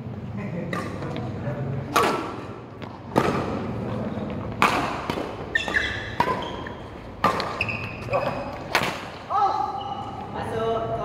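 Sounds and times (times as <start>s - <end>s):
racket hitting shuttlecock: 1.9s - 9.3s.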